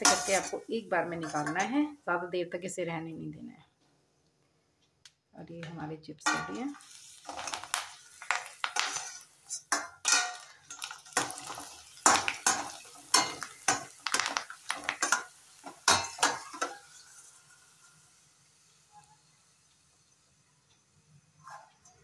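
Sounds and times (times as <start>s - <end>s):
metal spoon scraping a pan: 0.0s - 1.8s, 6.2s - 17.2s
oil sizzling: 0.0s - 2.3s, 6.2s - 21.2s.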